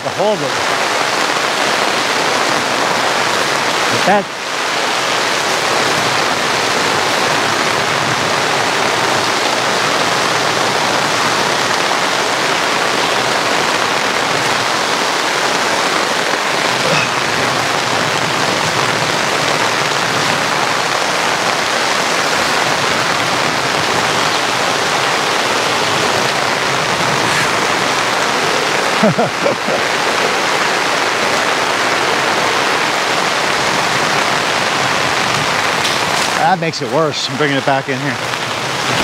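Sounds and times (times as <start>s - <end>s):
heavy rain on an awning: 0.0s - 39.0s.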